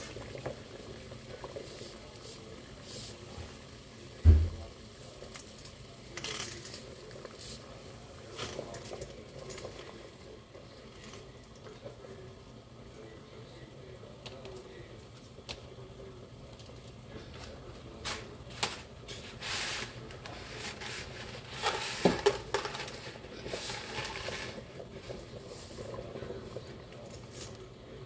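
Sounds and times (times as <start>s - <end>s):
dry spaghetti clicking and rattling: 5.2s - 7.6s, 16.4s - 27.6s.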